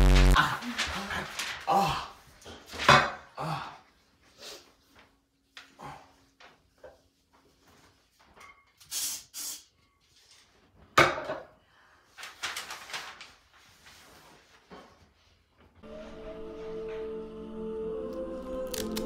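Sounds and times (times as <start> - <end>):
sudden burst of noise: 0.0 - 0.4
crackling: 0.0 - 1.7
newspaper pages rustling: 0.0 - 2.9, 12.1 - 15.3
aerosol spray can hissing: 8.9 - 9.7.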